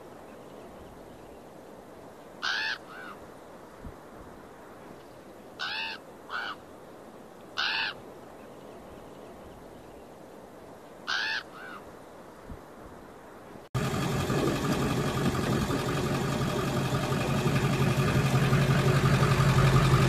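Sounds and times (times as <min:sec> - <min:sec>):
bird calling: 0:02.4 - 0:03.3, 0:05.6 - 0:06.7, 0:07.6 - 0:09.4, 0:11.1 - 0:11.9.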